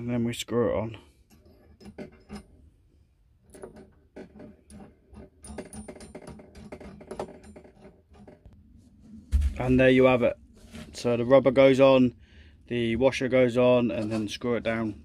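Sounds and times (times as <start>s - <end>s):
metal threads clicking and scraping: 1.1s - 2.7s, 3.4s - 8.6s.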